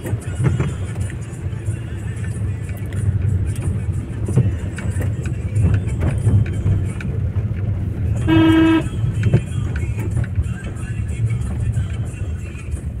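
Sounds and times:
rain tapping on car: 0:00.0 - 0:08.3, 0:08.9 - 0:13.0
car driving on wet road: 0:00.0 - 0:13.0
car horn: 0:08.2 - 0:09.1.

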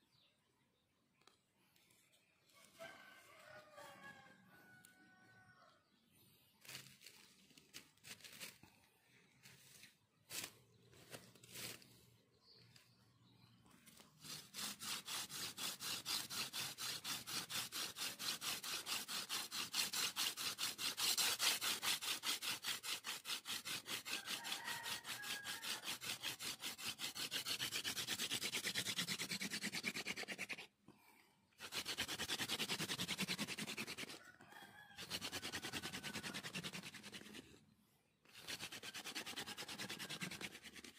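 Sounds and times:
wood-on-wood rubbing of hand drill: 0:13.9 - 0:30.6, 0:31.6 - 0:37.5, 0:38.3 - 0:40.9.

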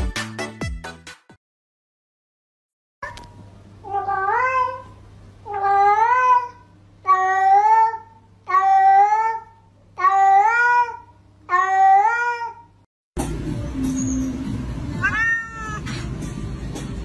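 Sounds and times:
cat meowing: 0:03.9 - 0:04.9, 0:05.5 - 0:12.7, 0:15.0 - 0:15.9.

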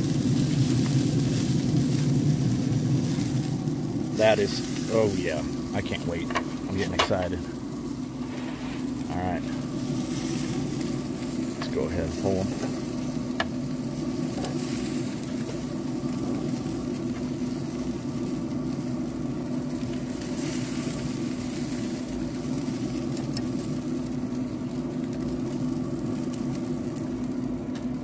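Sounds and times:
grill fan humming: 0:00.0 - 0:28.0
meat sizzling: 0:00.0 - 0:28.0.

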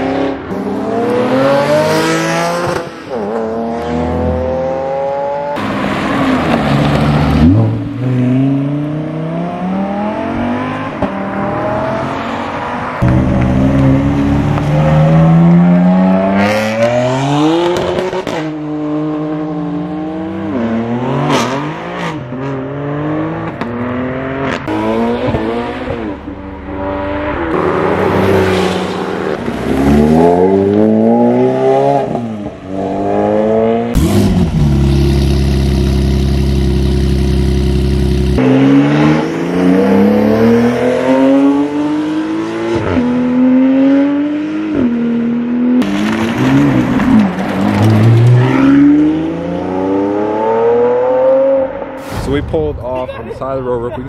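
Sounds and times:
car engine revving: 0:00.0 - 0:52.1.

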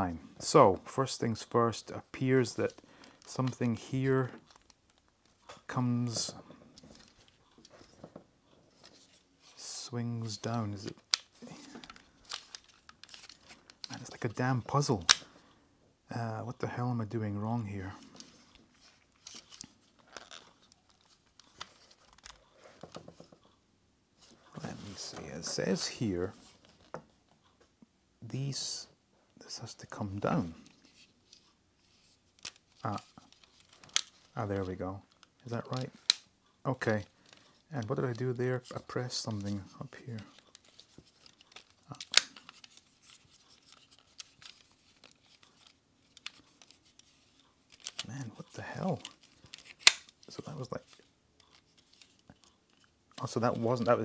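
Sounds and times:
plastic toy parts clicking: 0:49.0 - 0:50.1.

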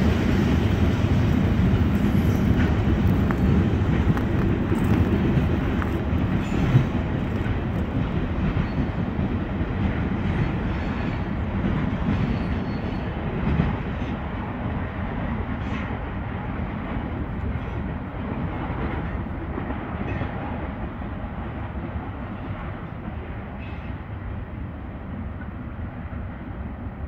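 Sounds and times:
freight train rumbling: 0:00.0 - 0:27.0.

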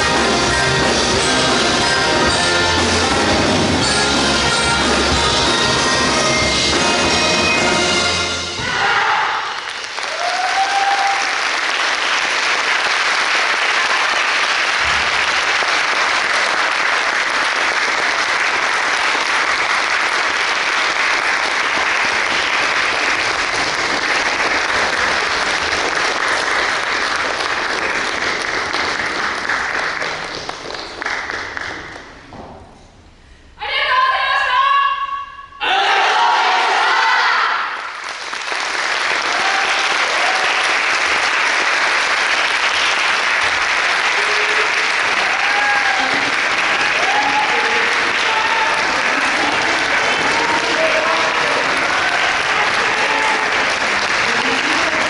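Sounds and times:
marching band music: 0:00.0 - 0:08.8
audience applauding: 0:09.4 - 0:32.3, 0:37.6 - 0:55.0.

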